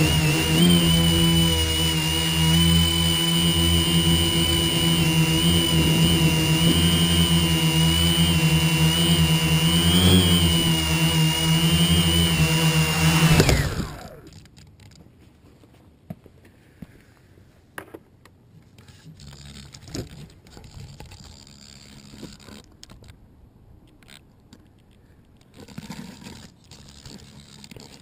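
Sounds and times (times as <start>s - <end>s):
camera handling scrapes and rubbing: 18.6s - 23.2s, 23.9s - 28.0s.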